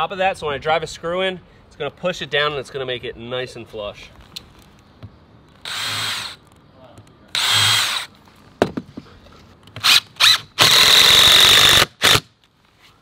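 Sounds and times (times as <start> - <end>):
cordless drill drilling: 5.6 - 6.4, 7.3 - 8.1, 9.8 - 12.3
impact driver driving screw: 9.8 - 12.3.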